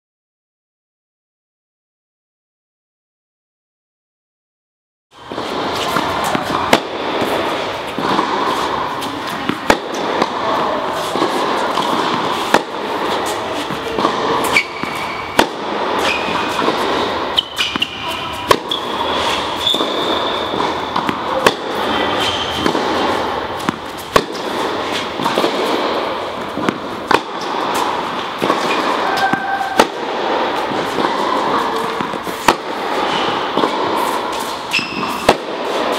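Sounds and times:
tennis balls struck by racquets: 0:05.2 - 0:35.9
indoor hall din: 0:05.3 - 0:34.7
shoes squeaking on court: 0:10.5 - 0:15.4, 0:16.0 - 0:29.8, 0:30.5 - 0:35.9.

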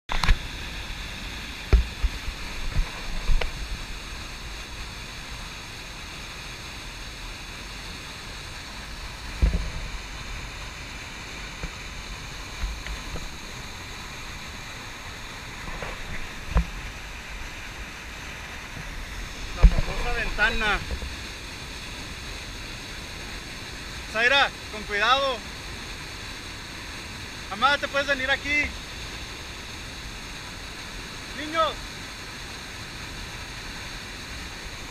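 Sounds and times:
waterfall roaring: 0:00.1 - 0:34.9
low bumps on microphone: 0:09.3 - 0:10.0, 0:18.8 - 0:20.1.

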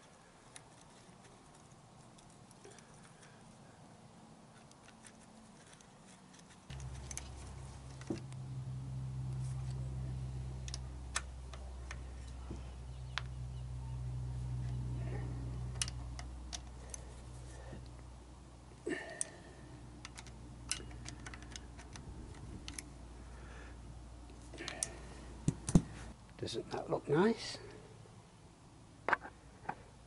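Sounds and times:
steady low hum: 0:00.0 - 0:30.0
metallic clicks of screwdriver and bolts: 0:20.0 - 0:22.9.

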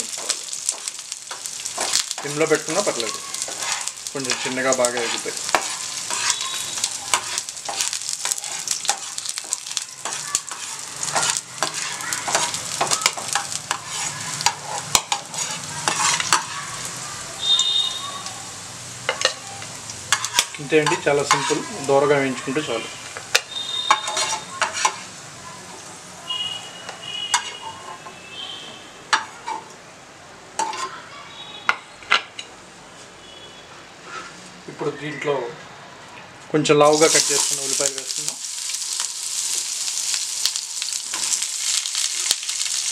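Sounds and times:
garlic sizzling in oil: 0:00.0 - 0:28.0, 0:36.8 - 0:42.9
spatula scraping a pan: 0:00.1 - 0:16.9, 0:20.1 - 0:21.9, 0:23.3 - 0:25.2, 0:27.2 - 0:28.2, 0:34.0 - 0:34.5.

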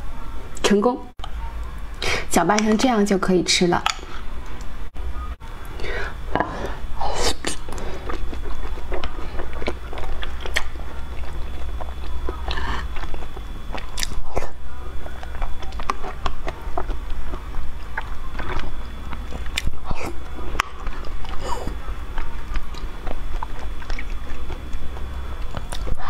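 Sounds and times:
steady low hum: 0:00.0 - 0:26.0
person chewing: 0:05.7 - 0:26.0.

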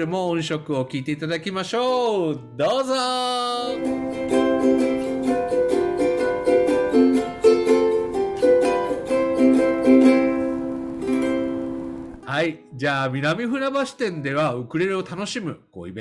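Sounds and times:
ukulele chords strummed: 0:03.6 - 0:12.7.

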